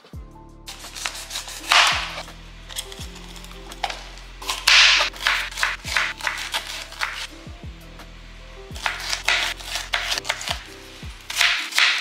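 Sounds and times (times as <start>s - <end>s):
background music with deep bass: 0.1s - 11.9s
knife slicing pepper crunches: 0.7s - 7.3s, 8.8s - 12.0s
knife tapping cutting board: 1.7s - 2.2s, 3.8s - 7.3s, 8.8s - 10.6s, 11.3s - 12.0s.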